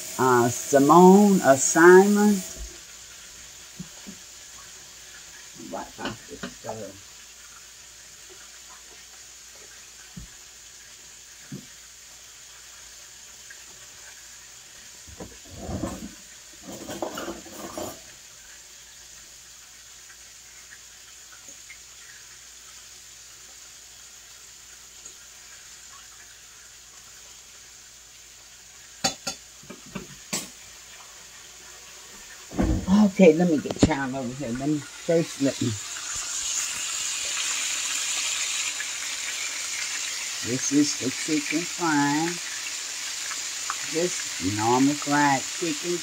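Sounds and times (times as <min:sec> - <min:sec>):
chicken wings sizzling in oil: 0:00.0 - 0:46.0
pans and utensils clattering: 0:15.2 - 0:18.2, 0:29.0 - 0:30.6.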